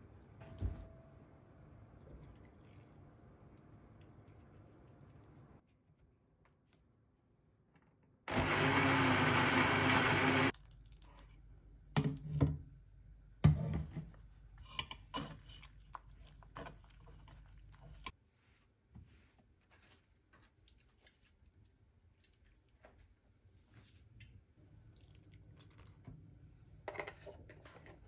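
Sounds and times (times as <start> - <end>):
blender running: 8.3 - 10.5.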